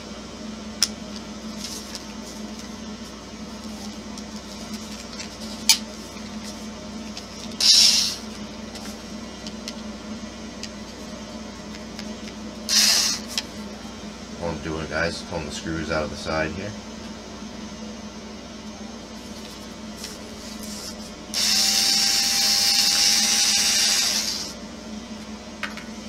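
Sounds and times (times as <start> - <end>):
steady low hum: 0.0 - 26.0
power drill bursts: 7.6 - 8.2, 12.7 - 13.3, 21.3 - 24.6.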